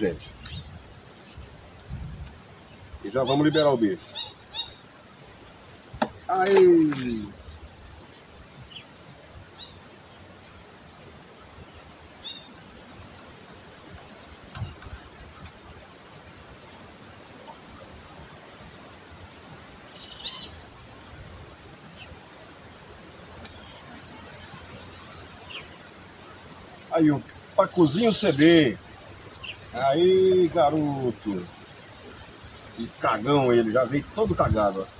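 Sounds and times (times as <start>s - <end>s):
bird chirps: 0.0s - 1.5s, 2.6s - 5.4s, 19.9s - 20.8s, 27.9s - 30.9s
insects buzzing: 0.0s - 34.9s.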